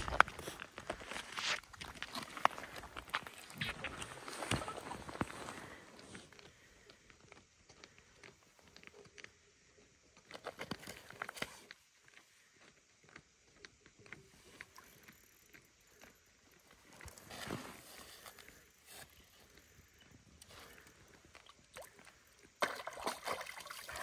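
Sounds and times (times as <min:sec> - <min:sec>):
clicks taps and rustles of gear: 0:10.2 - 0:11.8.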